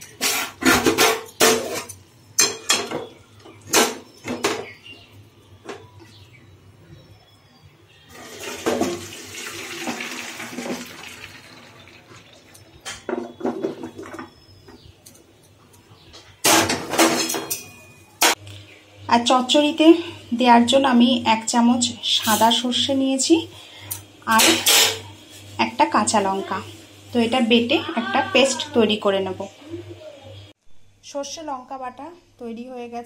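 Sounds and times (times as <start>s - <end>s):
metal pan and colander clanking: 0.0s - 3.1s, 16.4s - 18.4s, 24.3s - 25.1s
water draining into colander: 8.1s - 12.8s.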